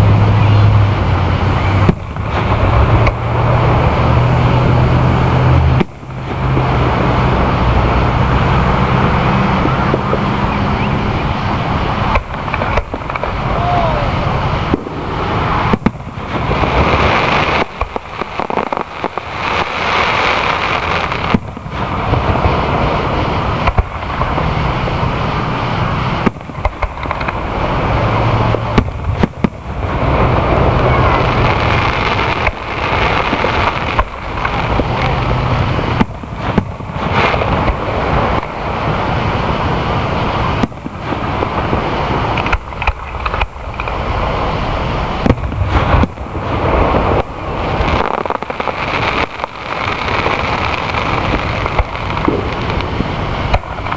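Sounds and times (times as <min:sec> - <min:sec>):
firework shells bursting: 0:01.8 - 0:04.0, 0:11.4 - 0:13.6, 0:14.5 - 0:24.4, 0:25.4 - 0:39.0, 0:40.4 - 0:44.4, 0:45.1 - 0:53.9.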